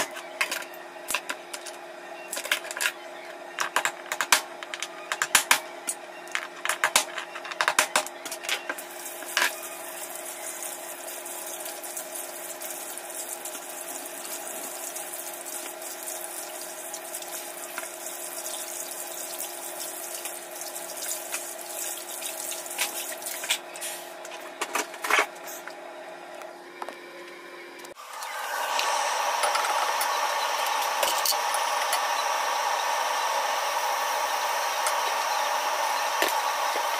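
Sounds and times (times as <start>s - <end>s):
hands washing: 9.9s - 23.6s.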